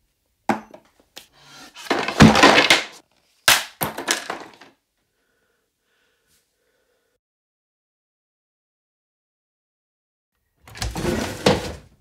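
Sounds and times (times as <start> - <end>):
wooden panels crashing: 1.8 - 4.7.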